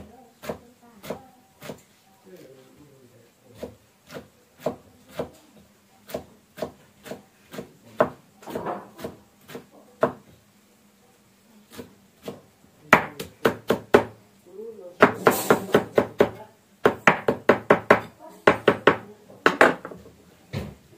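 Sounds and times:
knife chopping on wooden block: 6.1 - 10.2, 11.7 - 14.1, 15.0 - 20.0.

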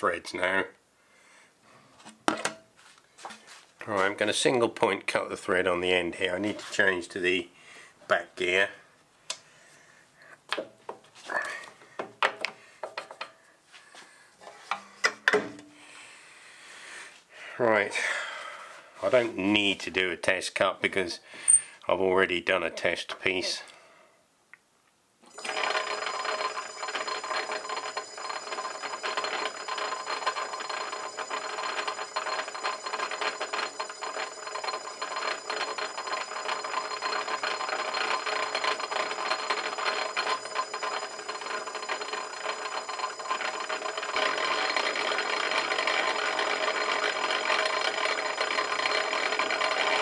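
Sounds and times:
metal lathe running: 25.3 - 50.0.

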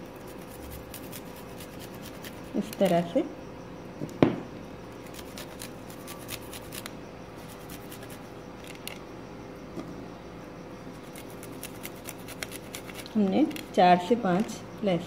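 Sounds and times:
garlic scraping on metal grater: 0.2 - 3.1, 11.0 - 13.7.

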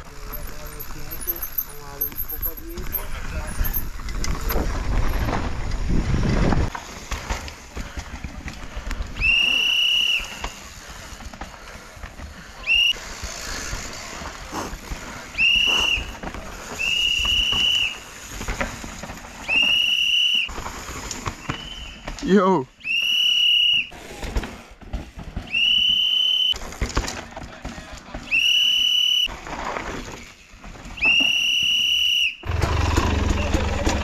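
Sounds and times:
high whistle blasts: 9.2 - 10.7, 12.6 - 13.0, 15.4 - 16.2, 16.8 - 18.0, 19.4 - 20.5, 21.4 - 22.1, 22.8 - 23.9, 25.5 - 26.6, 28.3 - 29.3, 31.0 - 32.4
low rumbling noise: 32.4 - 34.0.

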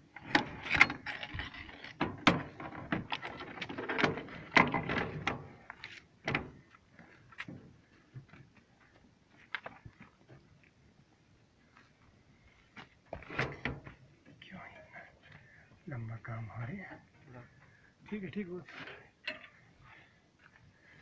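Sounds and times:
metal gun parts clicking and clanking: 18.9 - 19.6.

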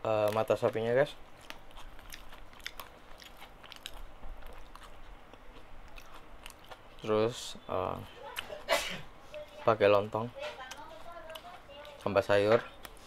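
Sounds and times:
person chewing food: 0.1 - 13.0
mouth clicks and smacks: 0.2 - 6.9.

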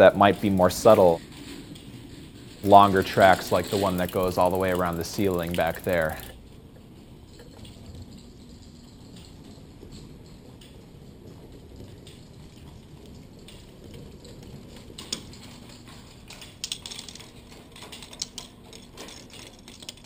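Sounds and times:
ball rolling on plastic track: 0.0 - 20.0
plastic clicks and clatters: 7.3 - 20.0.

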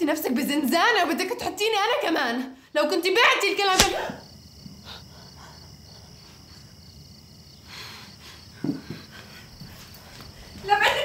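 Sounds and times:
crickets chirping: 3.8 - 10.9.

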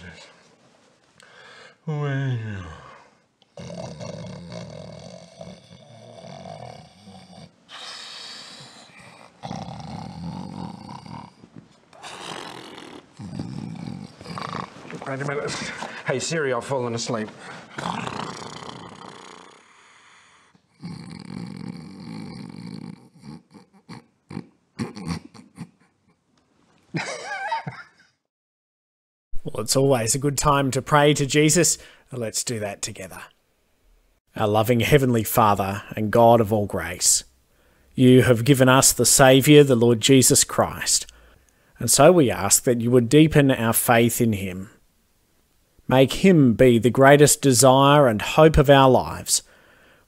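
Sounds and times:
man snoring: 1.9 - 11.4, 12.0 - 15.0, 17.7 - 25.1
short snorts: 3.6 - 11.4, 12.0 - 15.0, 17.4 - 25.3
man blowing out breath: 7.7 - 9.3.

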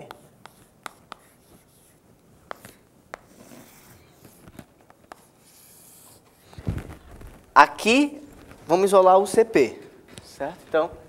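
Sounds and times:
chalk scratching on blackboard: 0.0 - 6.6
chalk tapping on blackboard: 0.0 - 6.6.

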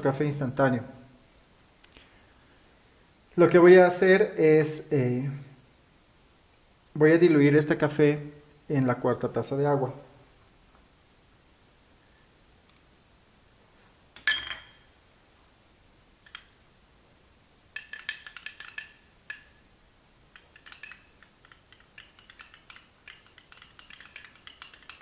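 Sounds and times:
spoon clinking against glass cup: 14.2 - 14.9.

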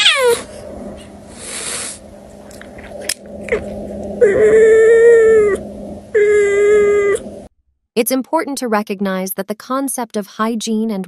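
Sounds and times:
cat meowing: 0.0 - 0.5.

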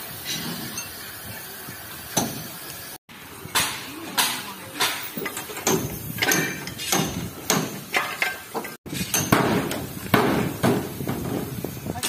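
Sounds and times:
hammer clanking on metal: 3.5 - 11.6.

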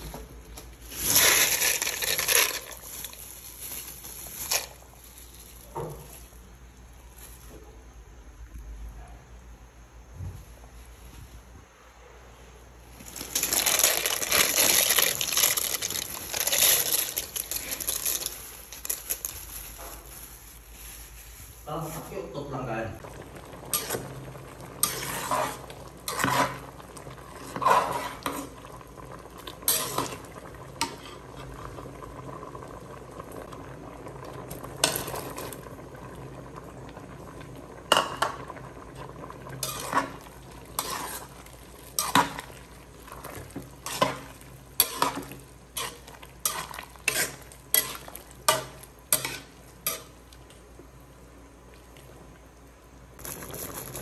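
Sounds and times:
metal ladle scraping a metal pot: 24.8 - 26.6, 39.6 - 41.4, 43.8 - 50.2.

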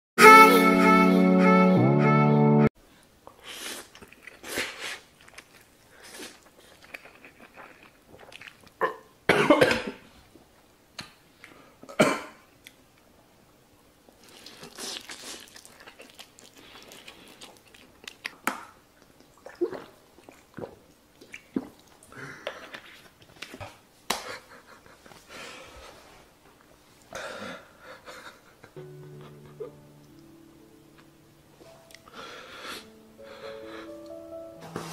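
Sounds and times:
man chewing and slurping noodles: 3.4 - 9.0, 14.2 - 18.4, 19.0 - 23.8
man coughing: 9.3 - 10.0
gulping water from plastic bottle: 14.3 - 23.2.

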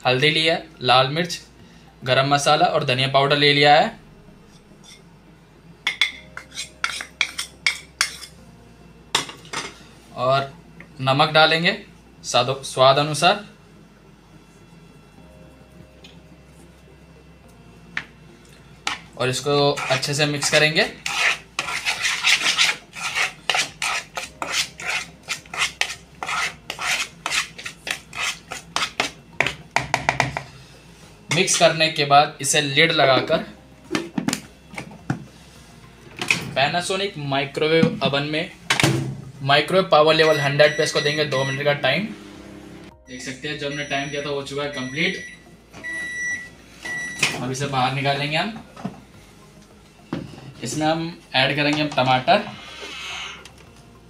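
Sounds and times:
fork scraping in plastic bowl: 19.8 - 29.2.

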